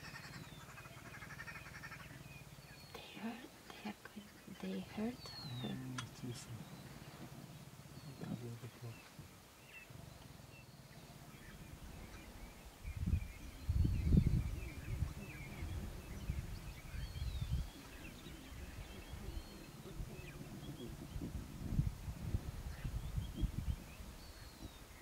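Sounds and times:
faint bird chirps: 0:00.0 - 0:25.0
lion cubs growling and grunting: 0:04.2 - 0:12.6, 0:14.4 - 0:22.9.

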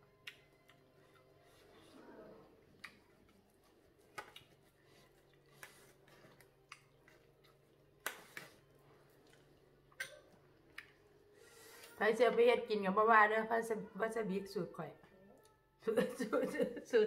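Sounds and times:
chewing: 0:00.2 - 0:10.0.

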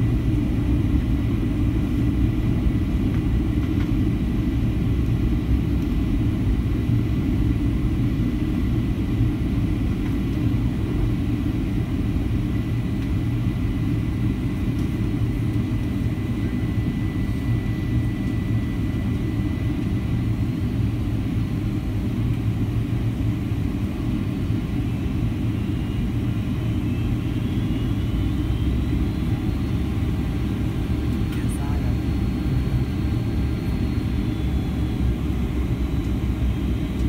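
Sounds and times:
airliner cabin engine rumble: 0:00.0 - 0:37.0
faint high whine: 0:25.0 - 0:37.0.

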